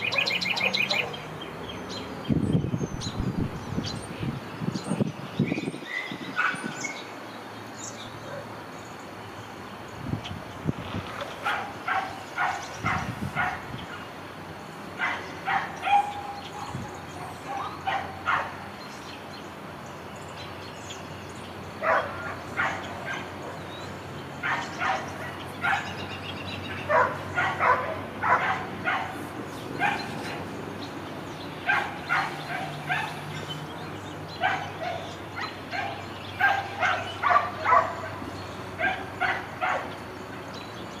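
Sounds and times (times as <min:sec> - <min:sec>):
dog barking: 0:00.0 - 0:01.2, 0:06.4 - 0:06.7, 0:08.2 - 0:08.5, 0:11.4 - 0:13.7, 0:15.0 - 0:16.8, 0:17.4 - 0:18.6, 0:21.8 - 0:23.6, 0:24.4 - 0:26.0, 0:26.9 - 0:29.2, 0:29.8 - 0:30.4, 0:31.6 - 0:33.2, 0:34.4 - 0:38.2, 0:38.8 - 0:40.0
faint steady background noise: 0:00.0 - 0:41.0.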